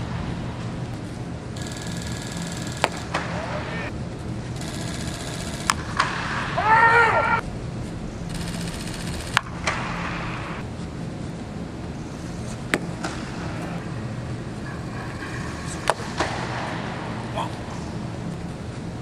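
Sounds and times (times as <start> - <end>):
low stadium hum: 0.0 - 19.0
baseball smacking into a mitt: 2.8 - 3.4, 5.7 - 6.4, 12.7 - 13.8, 15.8 - 16.8.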